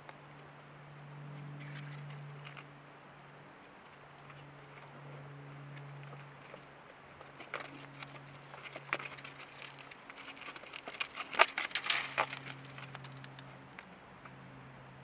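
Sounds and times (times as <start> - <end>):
hooves clicking on rock: 3.7 - 14.4.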